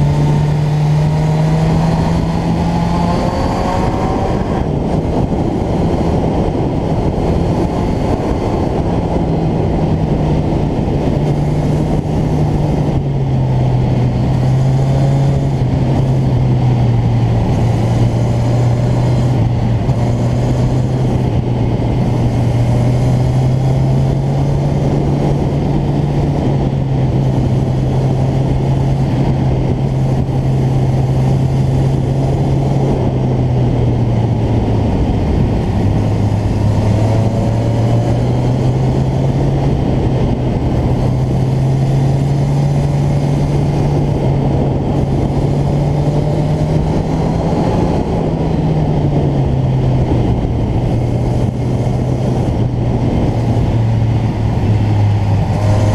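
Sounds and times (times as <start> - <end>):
motorcycle engine running: 0.0 - 55.9
wind rushing over microphone: 0.0 - 55.9.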